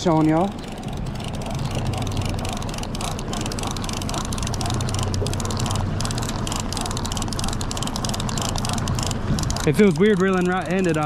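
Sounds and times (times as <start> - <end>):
boat engine running: 0.0 - 11.0
fast irregular ticking: 0.0 - 11.0.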